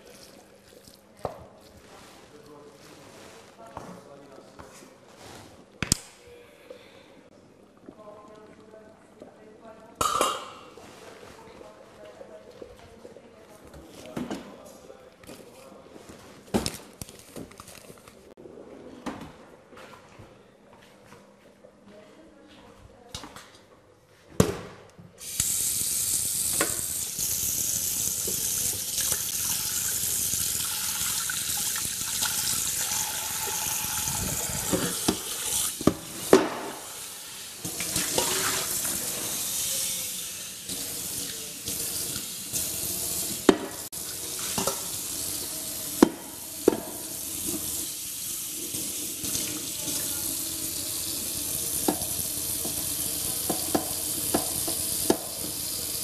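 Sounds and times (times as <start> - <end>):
tap water running: 25.2 - 56.0
water splashing on dishes: 26.5 - 36.9, 37.6 - 39.4, 40.6 - 47.9, 51.3 - 56.0.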